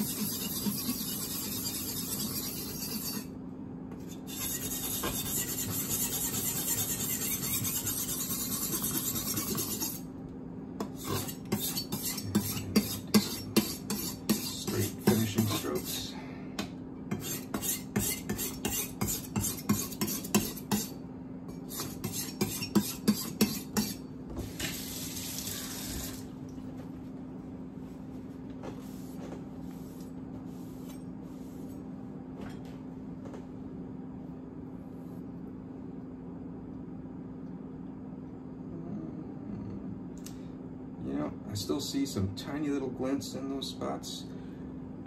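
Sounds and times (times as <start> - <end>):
knife scraping on whetstone: 0.0 - 3.4, 4.0 - 10.1, 10.8 - 16.0, 17.1 - 24.1
faint steady hum: 0.0 - 45.0
tap running water: 24.6 - 26.3.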